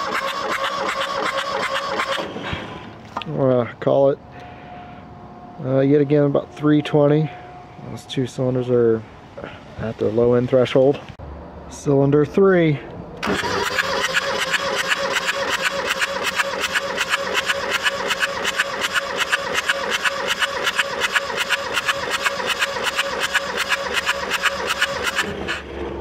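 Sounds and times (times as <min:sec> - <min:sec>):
diesel engine cranking chug: 0:00.0 - 0:03.0, 0:13.2 - 0:26.0
starter motor whine: 0:00.0 - 0:03.0, 0:13.2 - 0:26.0.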